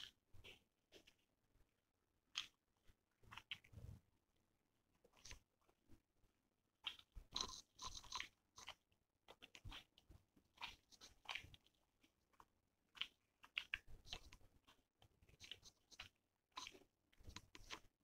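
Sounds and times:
person chewing food: 0.0s - 3.8s, 6.8s - 18.0s
wet clicks and crunches: 2.3s - 2.6s, 3.2s - 3.8s, 6.8s - 18.0s.

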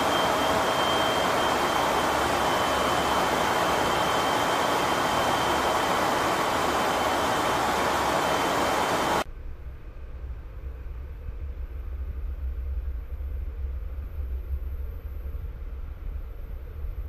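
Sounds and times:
engine and airflow rush: 0.0s - 9.4s
high-pitched whine: 0.0s - 12.9s.

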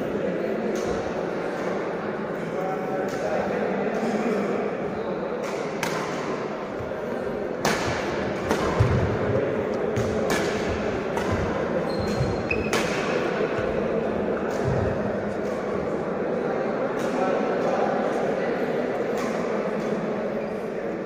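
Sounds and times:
murmur of hall: 0.0s - 21.0s
racket striking shuttlecock: 5.4s - 6.4s, 7.6s - 9.2s, 9.9s - 13.3s.

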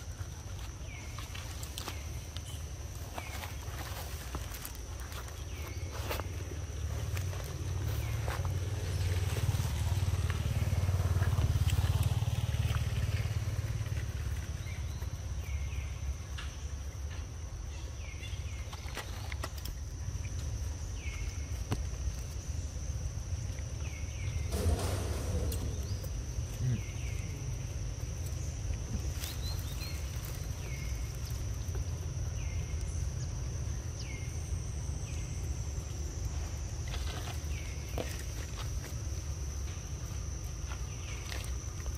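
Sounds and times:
low rumble: 24.1s - 29.1s.

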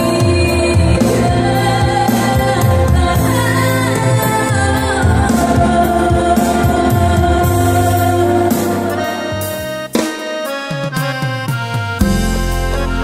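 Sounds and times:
woman singing into microphone: 0.0s - 9.6s
electronic keyboard with bass line: 0.0s - 13.0s.

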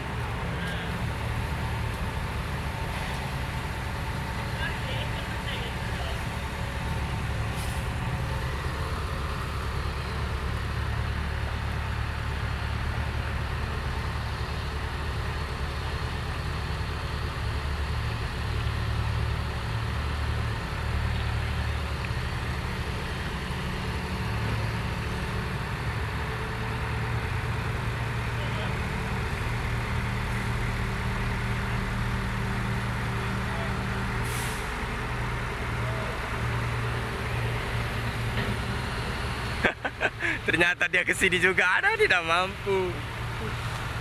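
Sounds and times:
diesel engine running: 0.0s - 44.0s.

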